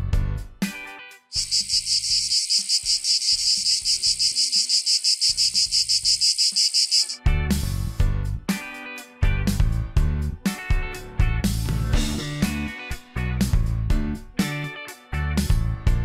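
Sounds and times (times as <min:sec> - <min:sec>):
cicadas buzzing: 0:01.3 - 0:07.2.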